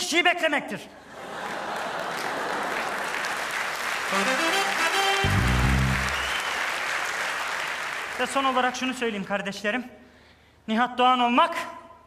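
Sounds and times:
audience applauding: 1.5s - 8.7s
musical sting: 4.1s - 6.4s.

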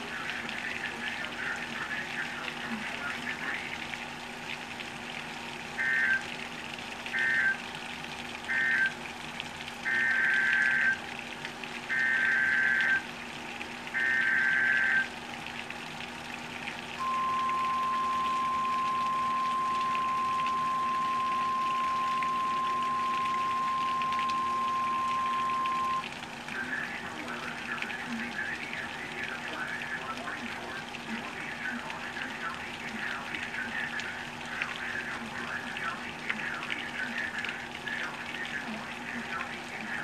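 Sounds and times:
heavy rain hiss: 0.0s - 4.4s, 17.0s - 40.0s
alert header squawks: 5.8s - 6.2s, 7.2s - 7.6s, 8.5s - 8.9s
steady high alarm tone: 5.8s - 6.3s, 7.1s - 7.6s, 8.5s - 9.0s, 9.8s - 11.0s, 11.9s - 13.1s, 14.0s - 15.1s, 17.0s - 26.0s
weather radio beeps: 5.8s - 6.3s, 7.1s - 7.6s, 8.5s - 9.0s, 9.8s - 11.0s, 11.9s - 13.1s, 14.0s - 15.1s, 17.0s - 26.0s.

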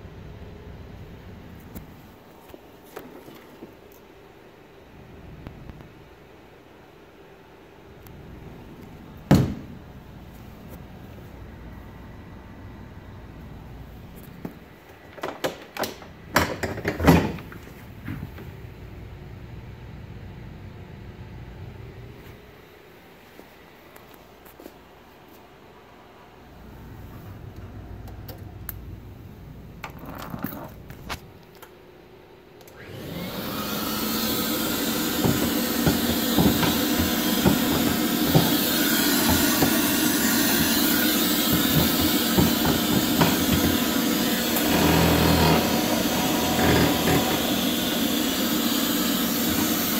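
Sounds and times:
floor scrubber motors whirring: 32.7s - 49.9s
knocks and rattles: 41.4s - 44.0s, 44.6s - 47.7s.

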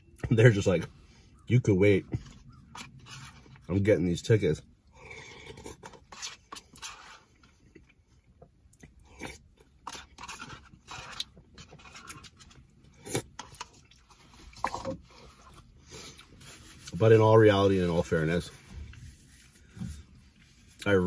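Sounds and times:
person chewing: 2.2s - 3.7s, 4.9s - 17.0s.

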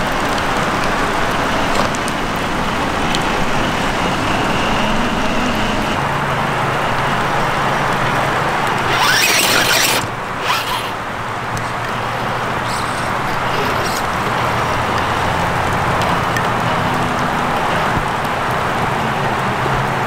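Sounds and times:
rushing water: 5.9s - 20.0s
toy truck motor whirring: 8.2s - 15.4s.

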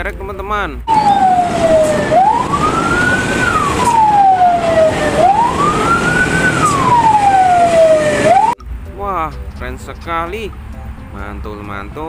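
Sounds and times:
wailing siren: 0.9s - 8.6s.

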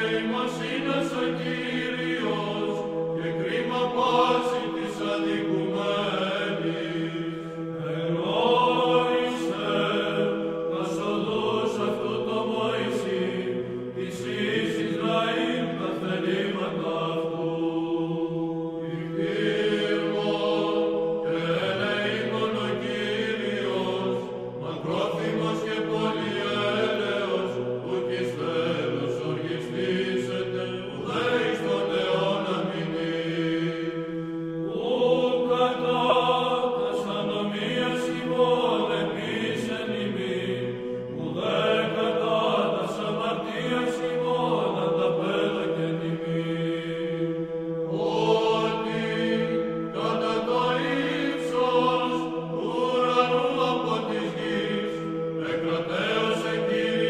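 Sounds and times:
chanted singing: 0.0s - 57.0s.

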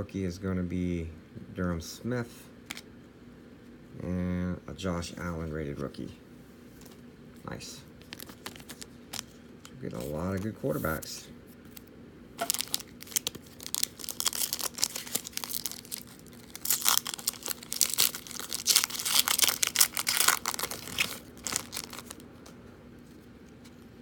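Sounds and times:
foil wrapper tearing and crinkling: 8.0s - 9.8s, 11.7s - 22.2s.

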